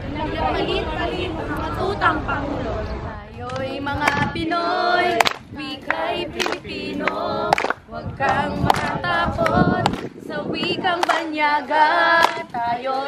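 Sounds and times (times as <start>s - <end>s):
group singing in unison: 0.1s - 13.0s
sharp hand claps: 5.2s - 11.3s, 12.2s - 12.5s.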